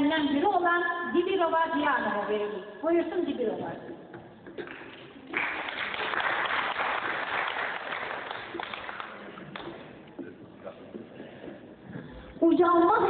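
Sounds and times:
audience applauding: 4.6s - 9.9s.

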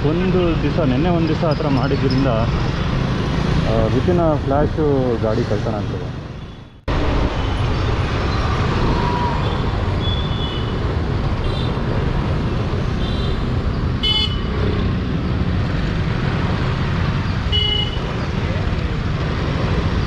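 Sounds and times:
traffic engine rumble: 0.0s - 20.0s
vehicle horn toots: 14.0s - 14.5s, 17.5s - 18.1s.

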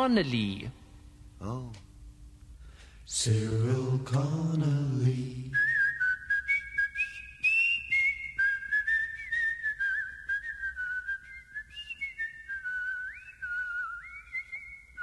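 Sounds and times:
person whistling a tune: 5.5s - 15.0s.

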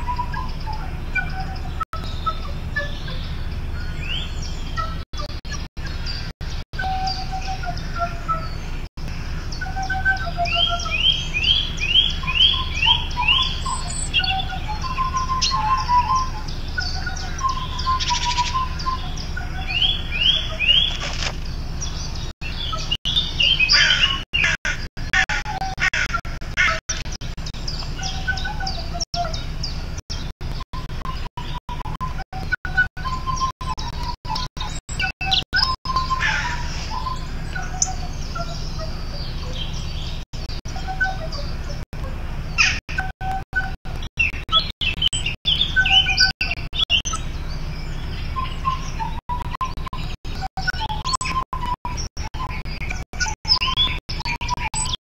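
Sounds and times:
small wind instrument piping: 0.0s - 8.6s
bird-like chirping and whistling: 0.0s - 55.0s.

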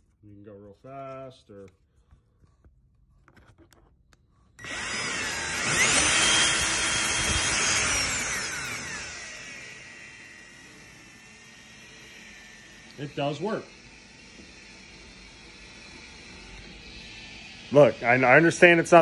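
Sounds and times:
cordless drill whine: 4.6s - 19.0s.

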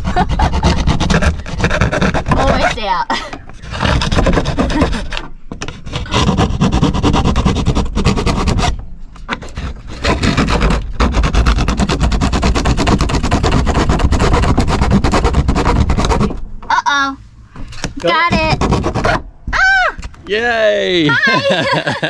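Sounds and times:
saw cutting roof panel: 0.0s - 16.4s, 18.2s - 19.2s.

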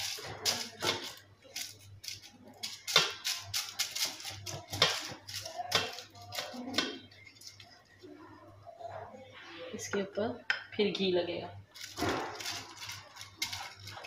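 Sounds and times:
paper crinkling: 11.8s - 14.0s.

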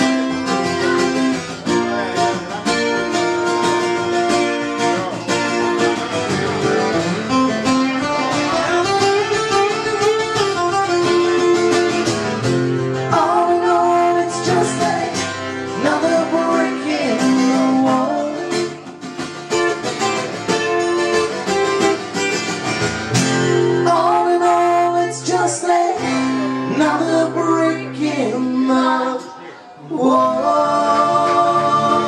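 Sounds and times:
acoustic guitars strumming: 0.0s - 32.0s
person singing: 13.0s - 18.9s, 23.8s - 32.0s.

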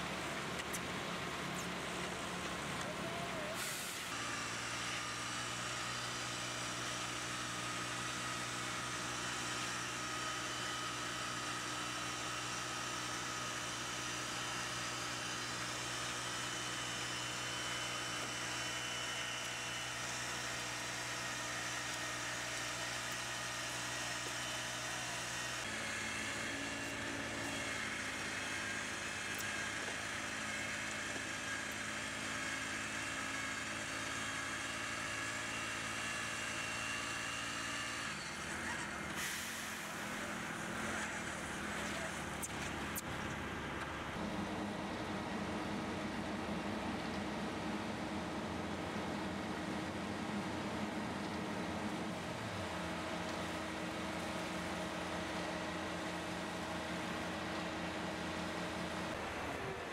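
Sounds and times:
small petrol engine running: 2.1s - 46.0s.

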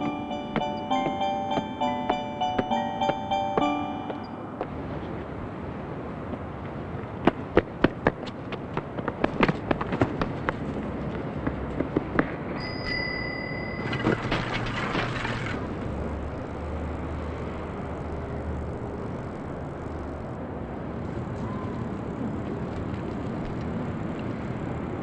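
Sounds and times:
steady ringing tone: 0.0s - 4.7s, 12.5s - 14.3s
running footsteps on pavement: 0.0s - 4.8s, 6.2s - 12.8s, 21.7s - 24.7s
bicycle crash clatter: 13.7s - 15.7s.

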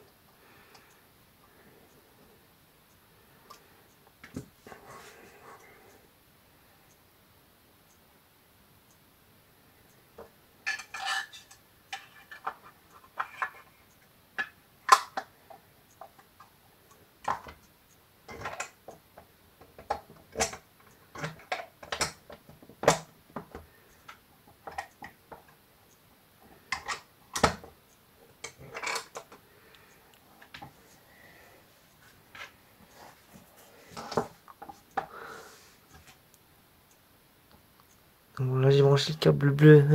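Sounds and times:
plastic parts clicking and knocking: 10.2s - 13.7s, 14.4s - 16.5s, 17.2s - 17.7s, 18.3s - 25.5s, 26.7s - 27.8s, 28.4s - 29.4s, 33.9s - 35.1s.

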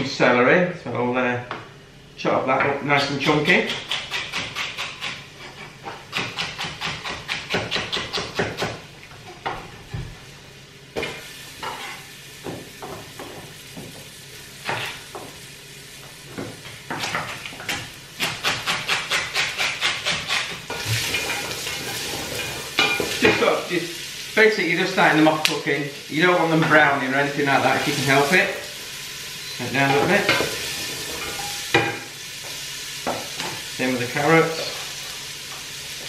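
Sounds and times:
knife chopping on wooden board: 5.9s - 8.8s, 16.9s - 21.1s
onion sizzling in oil: 10.2s - 36.0s.

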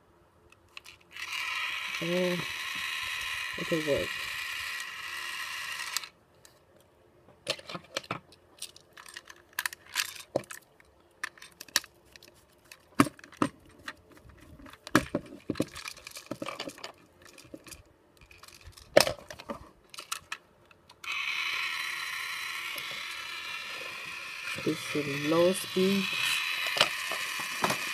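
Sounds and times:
plastic toy handling clicks: 0.5s - 6.1s, 7.5s - 13.4s, 14.3s - 27.9s
toy train motor whirring: 0.8s - 6.2s, 21.0s - 27.9s
screwdriver on battery cover: 1.2s - 6.1s, 21.0s - 27.9s.

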